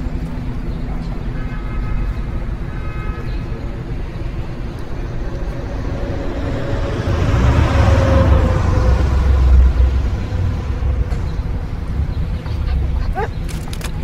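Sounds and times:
road traffic: 0:00.0 - 0:14.0
heavy truck passing: 0:02.3 - 0:13.2.

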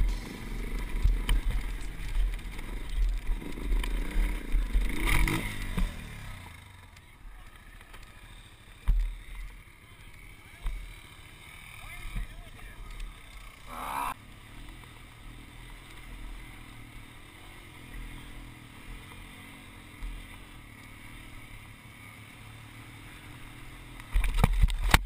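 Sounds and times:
dirt bike engine running: 0:00.0 - 0:25.0.

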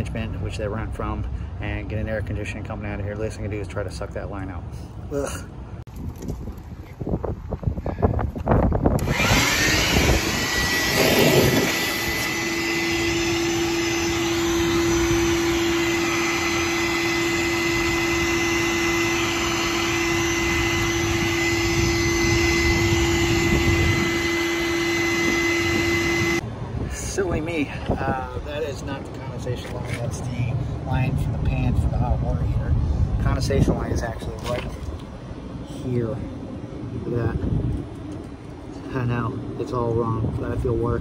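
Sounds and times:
shop vacuum running with whine: 0:09.0 - 0:26.4.

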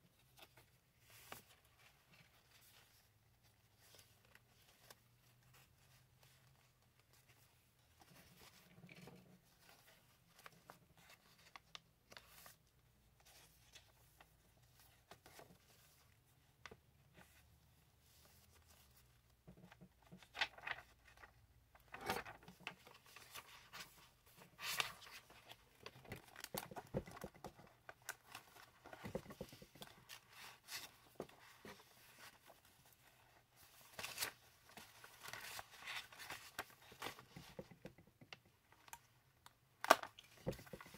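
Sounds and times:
paper pages rustling: 0:18.0 - 0:37.8, 0:39.8 - 0:40.9.

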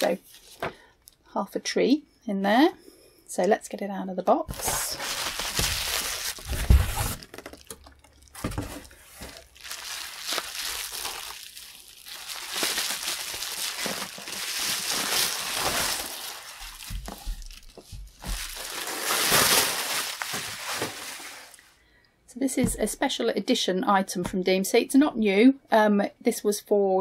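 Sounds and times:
bubble wrap crinkling: 0:04.5 - 0:21.7.

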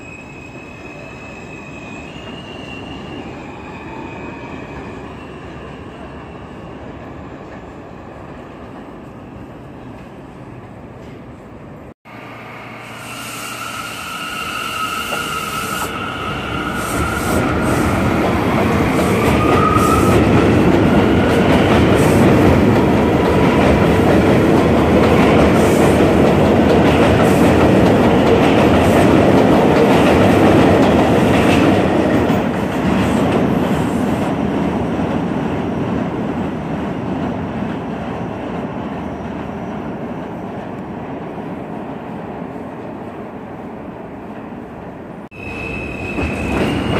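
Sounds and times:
train wheels clattering on rails: 0:16.7 - 0:40.8, 0:45.8 - 0:46.9.

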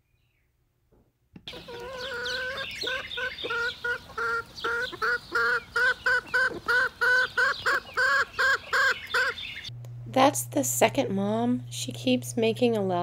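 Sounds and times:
chicks peeping: 0:01.4 - 0:09.7
hen calling: 0:01.4 - 0:09.7.

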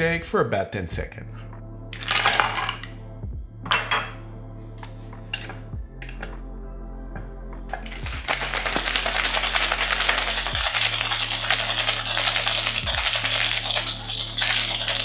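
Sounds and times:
background music with bass: 0:00.0 - 0:15.0
ice rattling in cocktail shaker: 0:02.0 - 0:02.9, 0:07.7 - 0:15.0.

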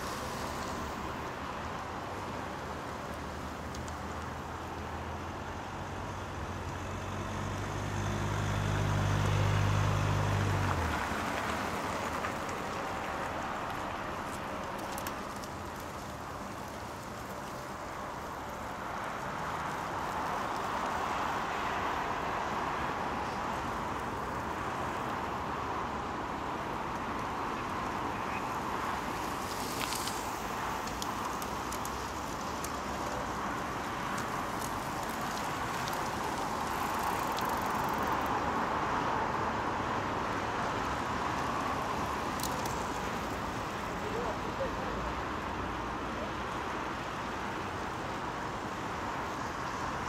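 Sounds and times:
tyres on wet asphalt: 0:00.0 - 0:50.0
faint clicks: 0:03.6 - 0:04.3, 0:13.7 - 0:17.6, 0:29.4 - 0:33.3, 0:34.1 - 0:38.2, 0:42.3 - 0:43.4.

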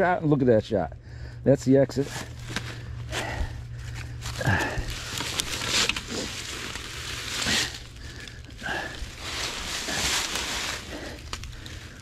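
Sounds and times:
dry leaves crunching and rustling: 0:02.0 - 0:12.0.

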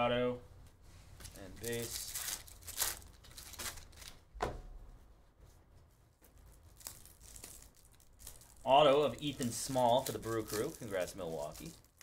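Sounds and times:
wrapper tearing and crinkling: 0:01.3 - 0:04.2, 0:06.5 - 0:12.0.

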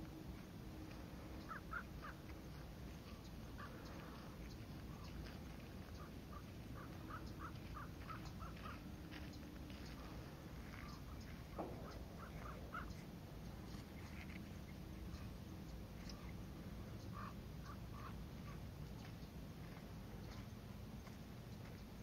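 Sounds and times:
crow cawing: 0:01.4 - 0:02.2, 0:03.6 - 0:04.3, 0:06.0 - 0:08.8, 0:11.8 - 0:13.0.

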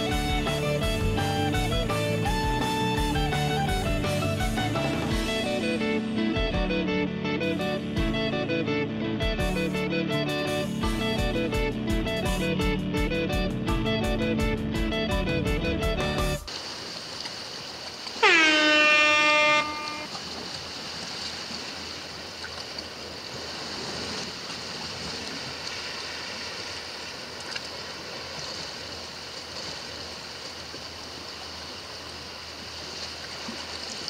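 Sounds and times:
loud horn-like tone: 0:18.2 - 0:20.2.

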